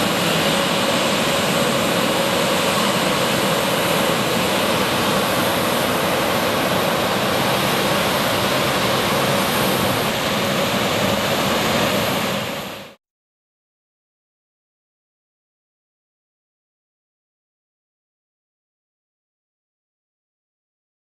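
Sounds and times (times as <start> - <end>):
faint engine whine: 0.0 - 13.0
jet engines idling: 0.0 - 13.0.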